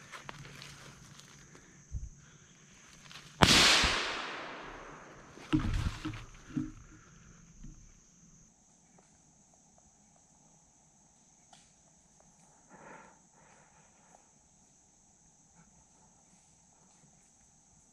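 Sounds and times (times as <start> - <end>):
rifle shot echoing: 3.4 - 5.7
dull knocks and rustles: 5.3 - 7.9.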